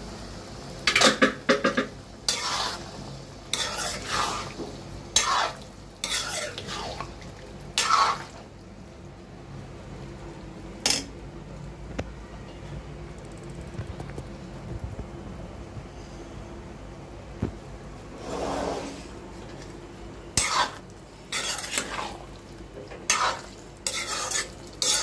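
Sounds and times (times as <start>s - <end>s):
spoon scraping metal pan: 2.3s - 2.8s, 3.5s - 4.5s, 5.2s - 7.0s, 20.4s - 22.2s, 23.1s - 25.0s.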